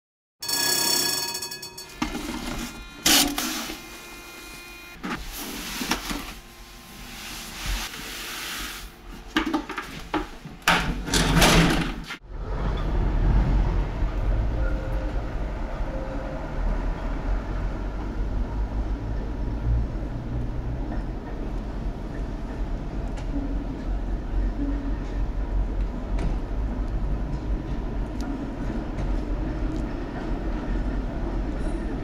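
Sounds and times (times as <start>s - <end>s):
steady high tone: 0.4s - 5.0s
tram running with low rumble: 12.2s - 32.0s.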